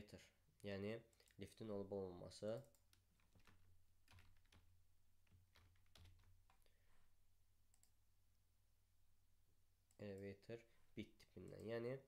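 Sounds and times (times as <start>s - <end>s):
faint keyboard typing: 2.4s - 7.1s, 7.7s - 8.0s, 11.4s - 12.0s.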